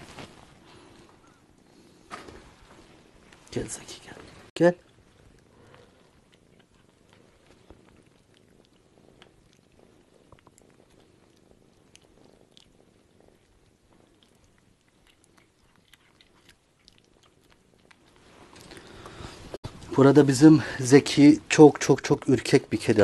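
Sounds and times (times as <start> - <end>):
kitten licking and chewing food: 4.5 - 19.9.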